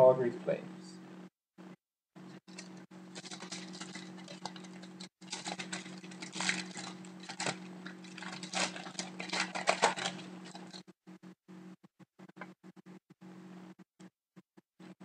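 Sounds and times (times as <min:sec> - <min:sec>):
foil wrapper crinkling and tearing: 0:02.3 - 0:10.8.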